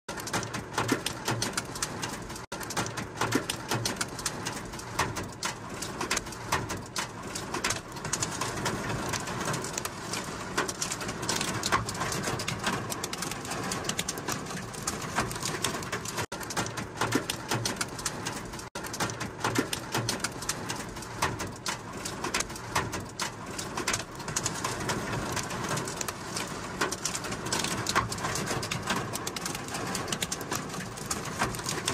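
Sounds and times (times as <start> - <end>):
heavy rain on car roof: 0.1 - 31.9.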